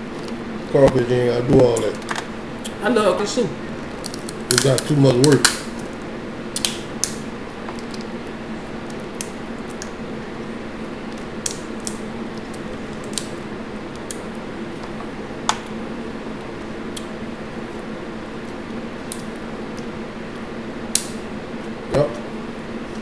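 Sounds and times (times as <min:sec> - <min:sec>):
box fan humming: 0:00.0 - 0:23.0
crawfish shells cracking: 0:03.8 - 0:05.9, 0:06.5 - 0:08.2, 0:08.8 - 0:10.0, 0:11.1 - 0:15.8.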